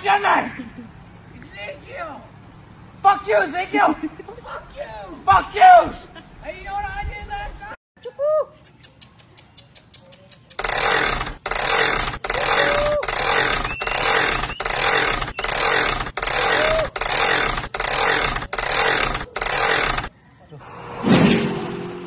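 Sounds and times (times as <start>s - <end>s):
harsh engine revving bursts: 10.6s - 20.1s.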